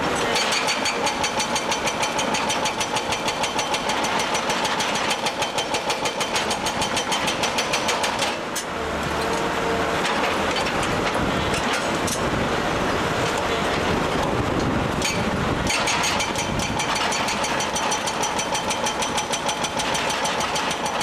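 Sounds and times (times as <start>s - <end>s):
hydraulic breaker hammering rock: 0.0s - 8.7s, 13.3s - 21.0s
excavator engine running: 0.0s - 21.0s.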